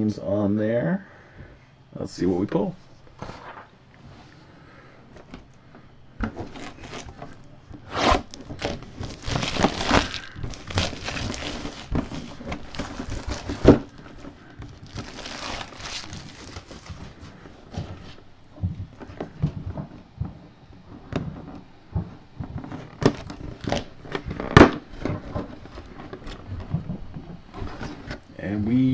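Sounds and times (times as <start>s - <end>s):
plastic shrink wrap tearing: 6.3s - 18.2s, 22.6s - 28.3s.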